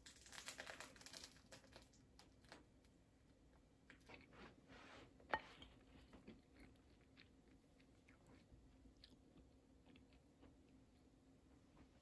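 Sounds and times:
crunching of crusty bread: 0:00.0 - 0:03.0.

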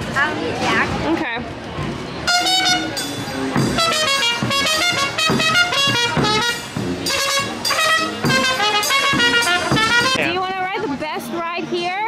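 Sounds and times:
brisk melody of short notes: 0:02.2 - 0:10.4.

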